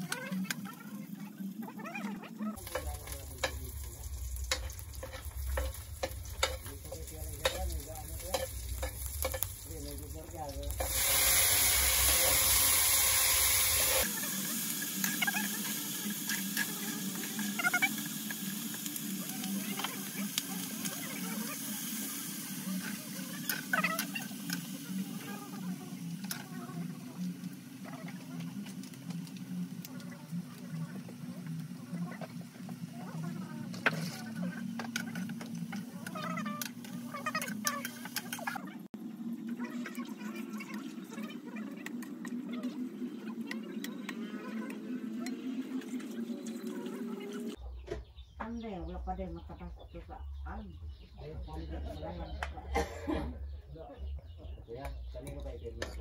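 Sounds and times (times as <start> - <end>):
metal ladle scraping a wok: 2.6 - 9.6, 10.7 - 14.1
meat frying in oil: 2.6 - 47.6.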